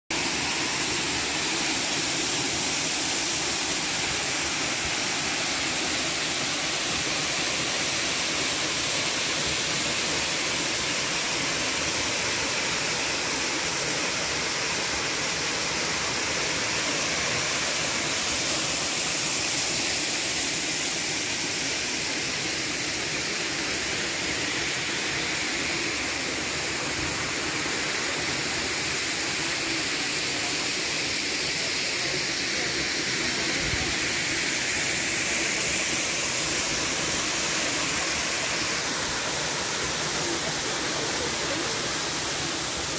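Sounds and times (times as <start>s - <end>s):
waterfall pouring into pool: 0.1s - 42.9s.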